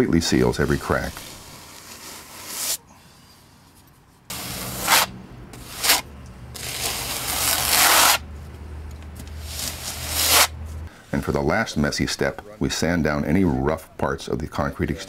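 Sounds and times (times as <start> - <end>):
trowel scraping wet cement: 0.3 - 2.8, 4.3 - 8.2, 9.4 - 10.5.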